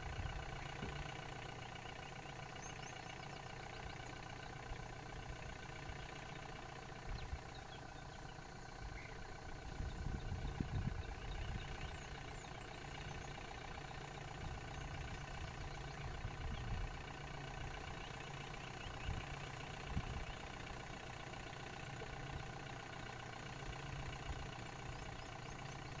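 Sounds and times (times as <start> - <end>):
vehicle engine idling: 0.0 - 26.0
low rumbles: 6.9 - 20.8.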